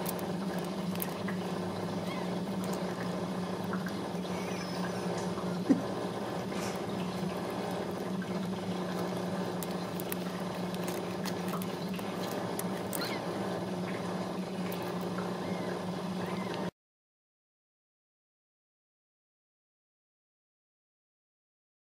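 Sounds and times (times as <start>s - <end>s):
kittens suckling clicks: 0.0s - 15.3s
steady low hum: 0.0s - 16.7s
tiny kitten squeaks: 2.0s - 2.4s, 4.3s - 5.2s, 12.9s - 13.2s, 15.4s - 16.6s.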